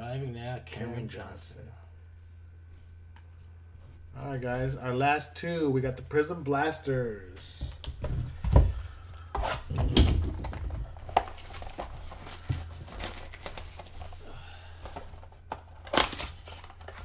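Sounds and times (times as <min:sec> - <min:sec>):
wrapper rustling: 0:10.0 - 0:14.3.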